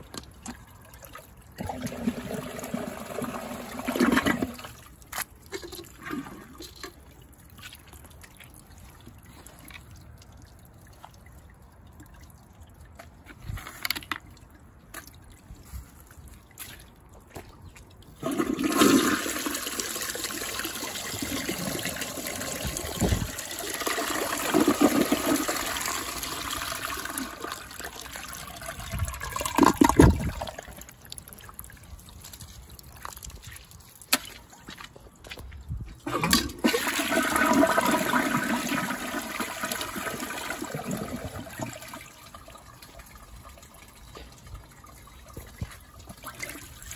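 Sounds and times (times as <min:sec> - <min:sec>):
toilet flushing: 0:01.6 - 0:04.8, 0:18.2 - 0:30.8, 0:36.0 - 0:43.2.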